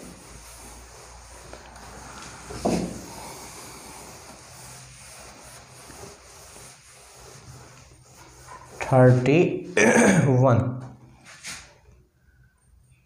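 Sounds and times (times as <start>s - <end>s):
cloth duster swishing on whiteboard: 0.0s - 9.6s, 11.2s - 11.8s.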